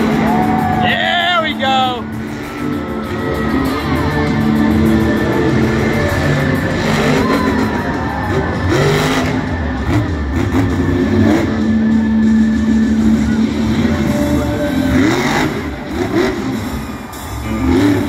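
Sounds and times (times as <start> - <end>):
music over sound system: 0.0 - 18.0
truck engine revving: 0.0 - 18.0.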